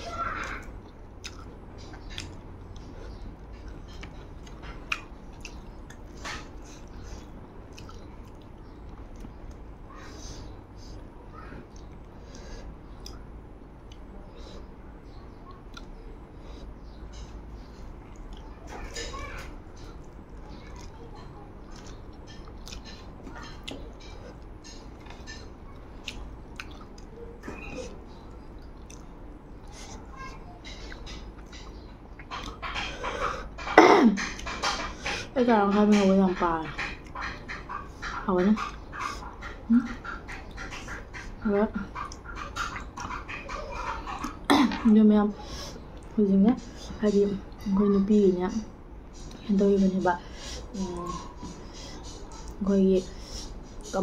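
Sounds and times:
low background hum: 0:00.0 - 0:54.0
person chewing food: 0:00.4 - 0:47.8
fingers working rice on plate: 0:29.6 - 0:54.0.

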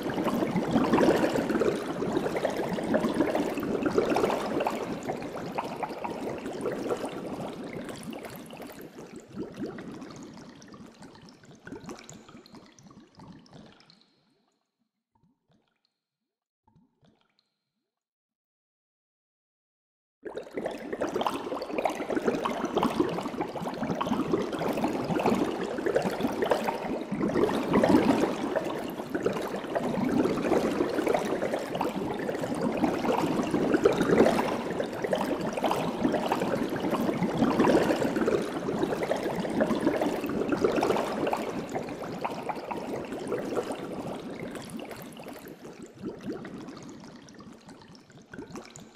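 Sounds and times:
aquarium water bubbling: 0:00.0 - 0:14.6, 0:20.2 - 0:48.9.

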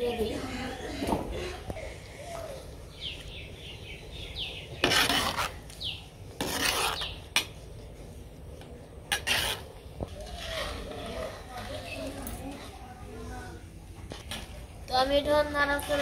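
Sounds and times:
spatula scraping in pot: 0:04.7 - 0:05.8, 0:06.4 - 0:07.6, 0:09.1 - 0:12.9.

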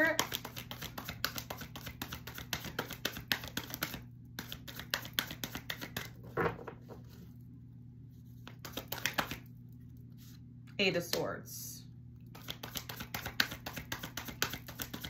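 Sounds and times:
cards being shuffled: 0:00.0 - 0:06.3, 0:08.4 - 0:09.5, 0:12.3 - 0:15.0.

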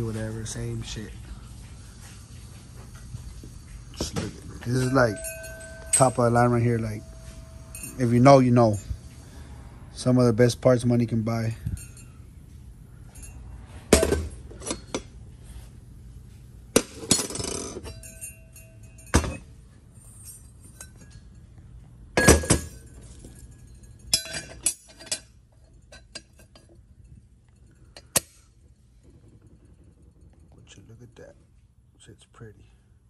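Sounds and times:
metal parts clinking on workbench: 0:04.0 - 0:08.8, 0:16.8 - 0:21.4, 0:22.2 - 0:26.8.

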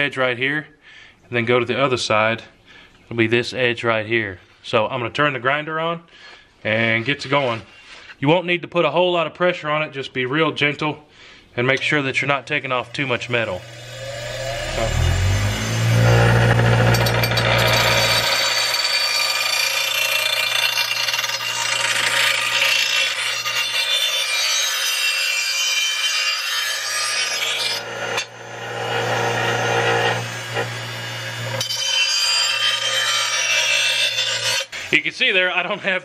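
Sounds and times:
grinding wheel hissing on steel: 0:11.8 - 0:24.6, 0:26.7 - 0:35.0
bench grinder motor hum: 0:11.8 - 0:25.3, 0:26.4 - 0:34.9.

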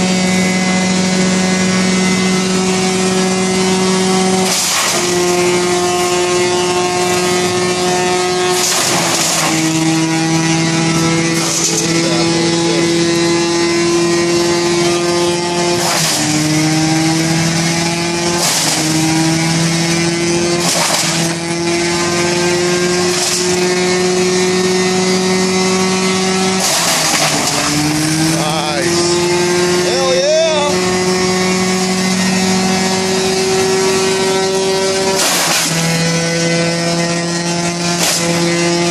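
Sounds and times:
wood chipper humming: 0:00.0 - 0:38.9
branches crunching in chipper: 0:26.5 - 0:29.1.

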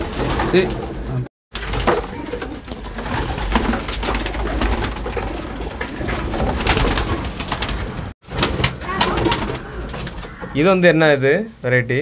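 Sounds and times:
wing flapping: 0:00.0 - 0:10.5
pigeons cooing: 0:02.1 - 0:07.8.

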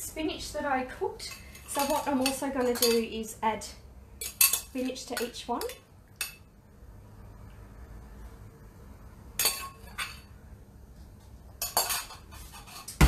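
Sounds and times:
metal spoon clinking on dishes: 0:01.3 - 0:03.1, 0:04.2 - 0:06.5, 0:09.4 - 0:10.3, 0:11.6 - 0:12.9.

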